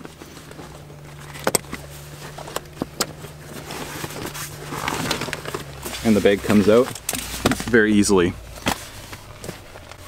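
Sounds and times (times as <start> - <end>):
fabric bag rustling: 0.0 - 10.0.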